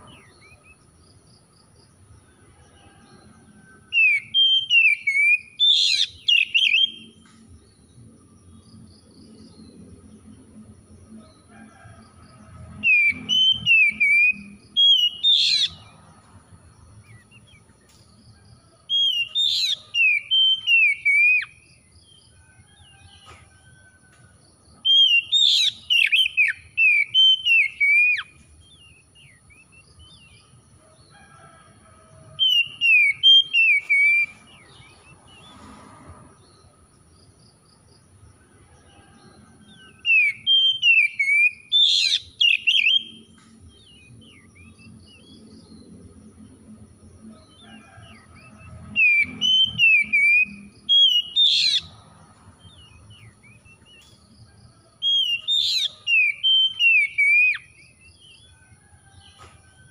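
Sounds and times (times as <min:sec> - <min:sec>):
bird singing whistled phrases: 0:04.0 - 0:07.1.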